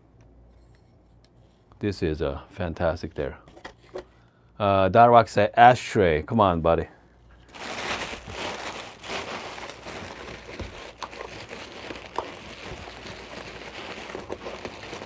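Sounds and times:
packing paper rustling and crinkling: 7.4 - 15.0.

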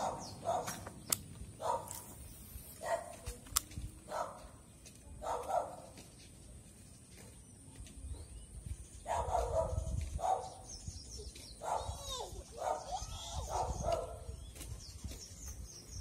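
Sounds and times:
dog barking: 0.0 - 0.8, 1.6 - 2.0, 2.8 - 3.2, 4.1 - 4.5, 5.2 - 6.0, 9.0 - 10.6, 11.6 - 12.0, 12.6 - 14.3.

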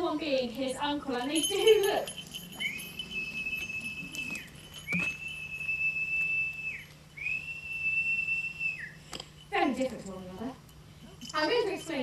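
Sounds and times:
high falconer's whistle: 2.6 - 9.1.

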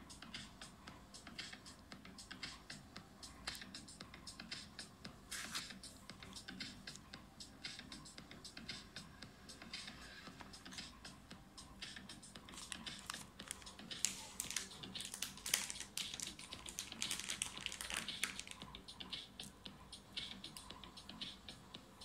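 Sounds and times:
paper and fabric rustling: 5.3 - 5.7, 12.5 - 18.6.

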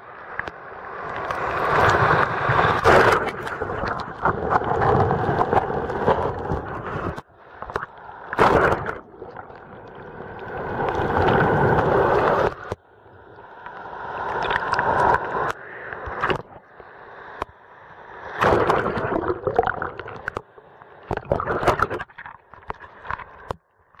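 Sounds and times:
waves splashing: 0.3 - 12.8, 13.6 - 17.4, 18.2 - 20.4
muffled underwater gurgling: 1.7 - 12.8, 18.4 - 20.4, 21.0 - 23.3.

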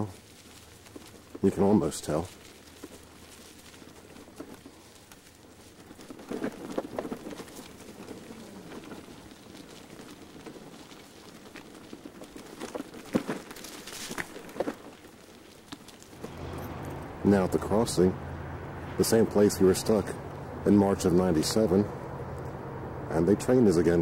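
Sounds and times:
bicycle rattles and knocks: 0.0 - 17.1
bicycle tyres crunching on gravel: 0.0 - 18.1.

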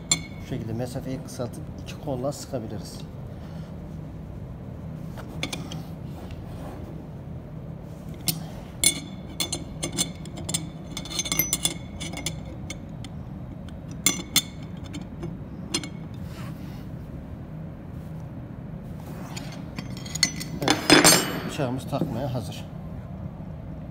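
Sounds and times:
wrenches clinking on metal: 0.0 - 0.7, 8.2 - 16.2, 19.2 - 22.0
steady low hum: 0.0 - 23.9.

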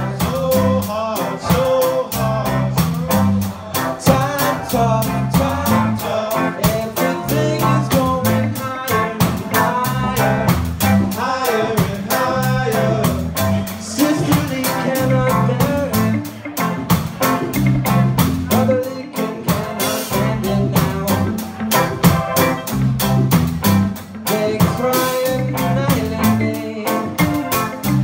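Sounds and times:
person singing: 0.0 - 22.7, 24.1 - 28.0
band playing: 0.0 - 28.0
drum beat: 2.8 - 18.7, 19.5 - 25.3.

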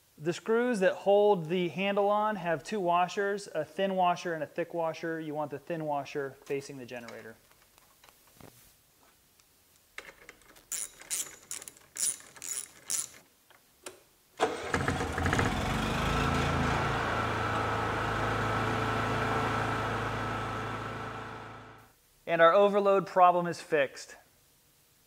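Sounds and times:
socket ratchet clicking: 10.7 - 13.2
generator engine running with whine: 14.7 - 21.9.

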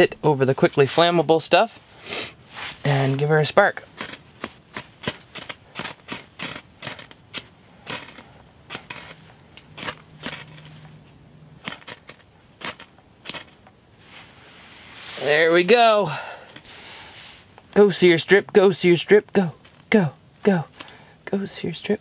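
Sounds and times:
striker scraping ferro rod: 3.8 - 11.0, 11.6 - 13.7.

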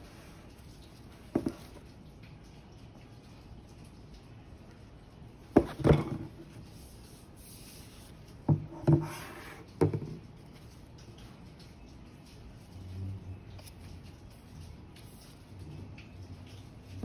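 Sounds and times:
soft rubbing: 5.6 - 9.8.

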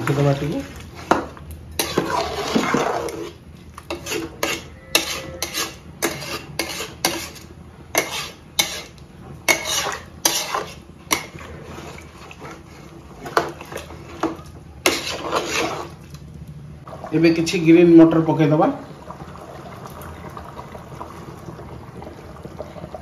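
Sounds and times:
stirring watery curry: 0.0 - 16.2
wooden spatula scraping a pot: 0.0 - 16.2.

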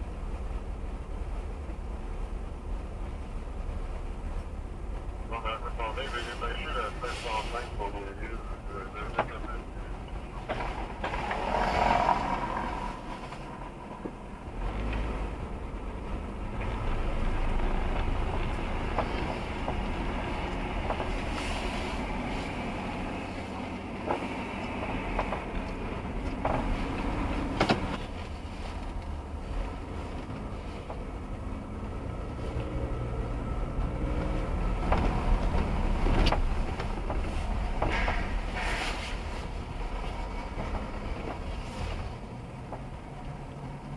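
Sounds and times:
car engine and tyre noise: 0.0 - 43.9
sharp knocks and clicks: 24.0 - 28.0, 34.8 - 38.4.

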